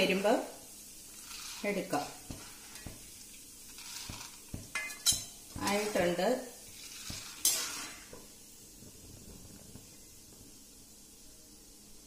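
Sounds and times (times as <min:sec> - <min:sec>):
oil sizzling: 0:00.0 - 0:12.0
metal skimmer clinking on pan: 0:04.7 - 0:05.9.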